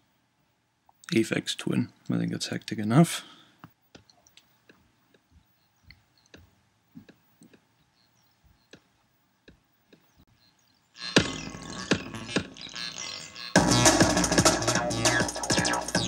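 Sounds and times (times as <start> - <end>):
faint irregular clicks and ticks: 3.6 - 7.9.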